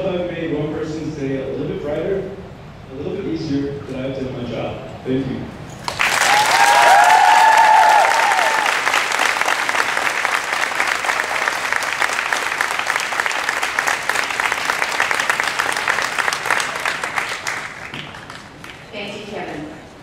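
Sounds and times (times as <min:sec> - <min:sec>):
audience applauding: 0:05.8 - 0:18.9
high cheering calls: 0:05.9 - 0:17.9.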